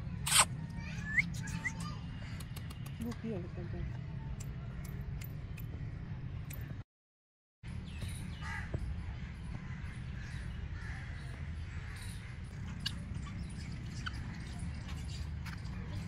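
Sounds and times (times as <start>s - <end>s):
birds calling: 7.9s - 16.0s.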